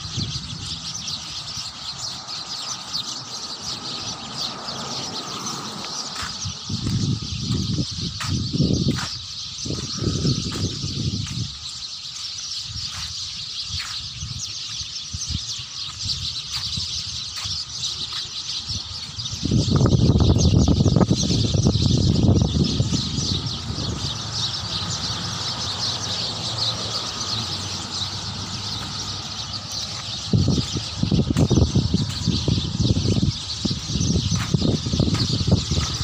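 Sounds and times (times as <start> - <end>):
small birds chirping: 0.0 - 36.0
low rumble on microphone: 6.1 - 11.6, 27.2 - 36.0.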